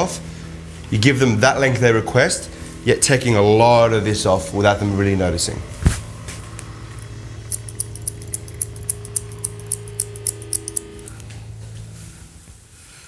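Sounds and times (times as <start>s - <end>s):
scissors snipping hair: 7.5s - 11.3s.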